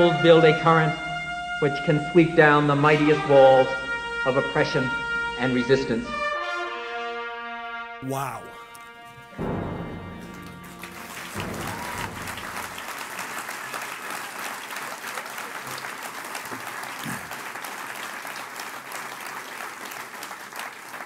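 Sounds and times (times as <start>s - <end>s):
music track: 8.0s - 13.1s
large audience applauding: 10.2s - 21.0s.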